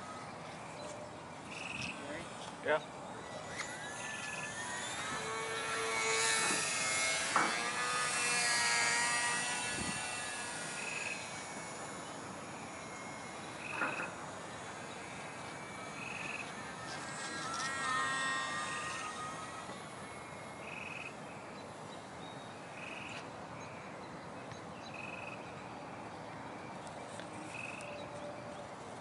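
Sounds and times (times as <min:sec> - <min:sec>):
model airplane motor whining: 0:00.0 - 0:24.0.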